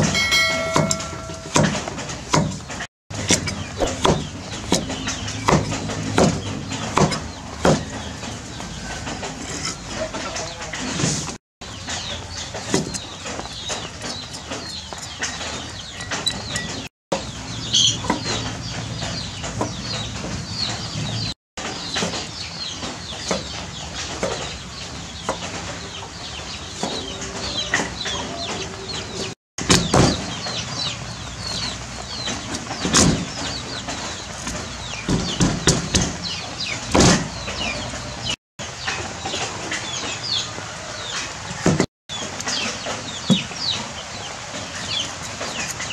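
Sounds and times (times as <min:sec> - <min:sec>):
chickens clucking and chirping: 0:11.7 - 0:45.9.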